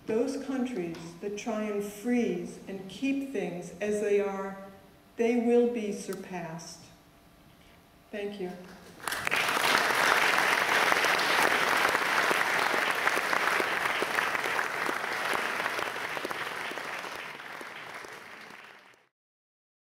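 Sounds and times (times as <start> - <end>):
audience applauding: 9.0 - 19.1.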